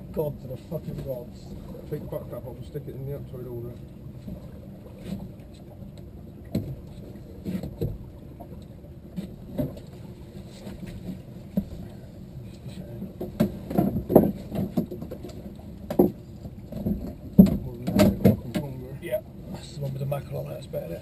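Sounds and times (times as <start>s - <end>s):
boat low rumble: 0.0s - 21.0s
knocks and thumps on hull: 4.2s - 8.5s, 9.1s - 12.0s, 12.8s - 19.7s.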